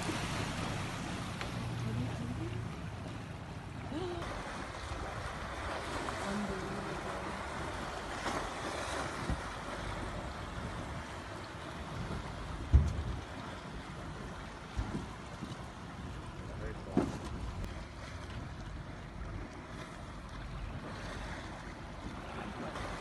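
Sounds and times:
water washing against boat: 0.0 - 23.0
wind on microphone: 4.3 - 15.6.

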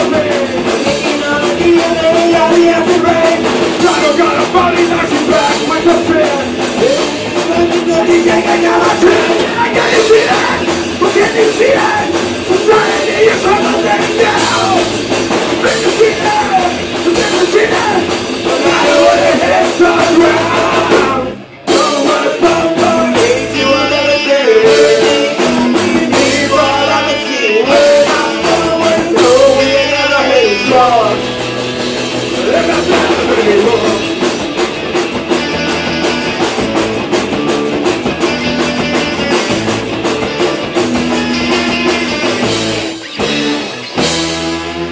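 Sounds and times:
punk rock band playing live: 0.0 - 44.9.

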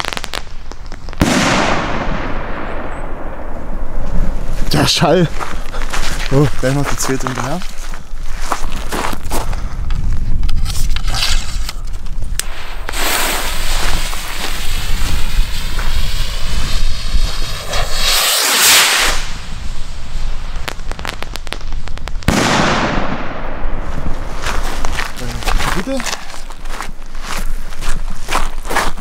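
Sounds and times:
rocket launching with crackle: 0.0 - 5.0, 10.6 - 26.6
firework bang: 1.2 - 3.7, 12.4 - 24.4.

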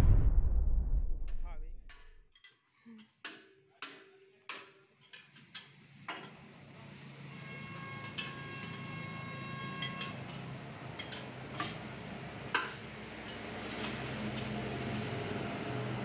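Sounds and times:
low steady hum: 0.0 - 2.2.

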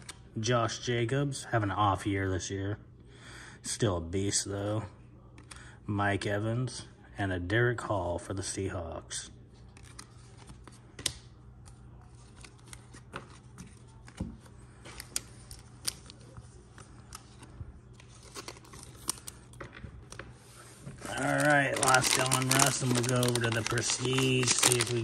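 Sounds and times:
cards being shuffled: 9.7 - 25.0
foil wrapper crinkling: 18.0 - 19.7, 21.0 - 25.0.

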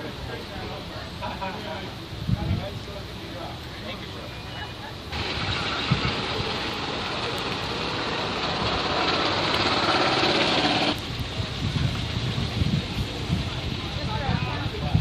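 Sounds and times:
truck engine running rough: 5.1 - 11.0.

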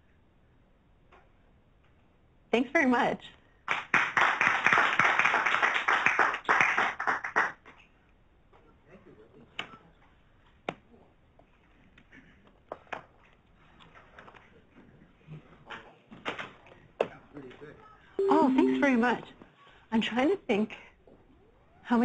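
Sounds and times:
audience applauding: 3.7 - 7.6.

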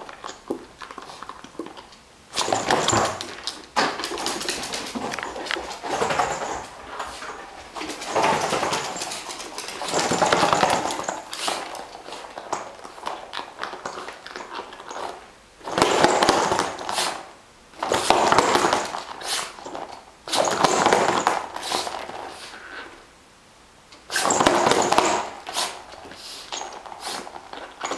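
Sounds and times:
dog scrabbling on wooden floor: 2.4 - 22.4.

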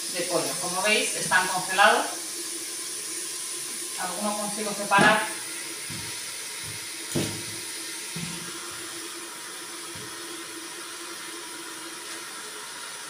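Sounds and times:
soft knocks: 5.9 - 7.6.

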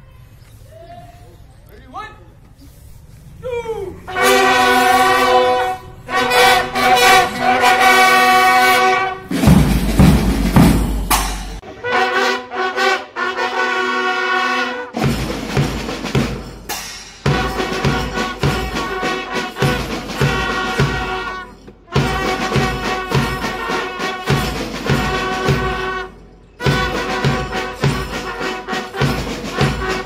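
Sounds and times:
brass band long held notes: 4.0 - 11.0, 11.6 - 16.5, 17.2 - 30.0
side drum and cymbal beats: 9.3 - 11.6, 15.0 - 30.0.

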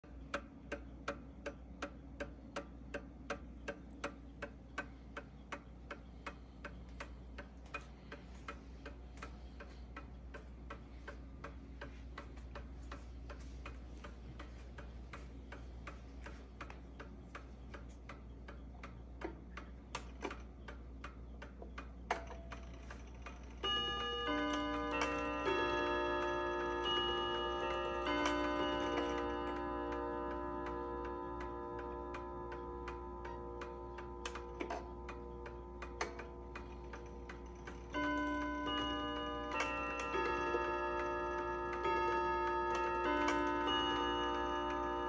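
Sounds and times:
clock ticking: 0.0 - 45.0
clock chime rods ringing: 22.2 - 45.0.

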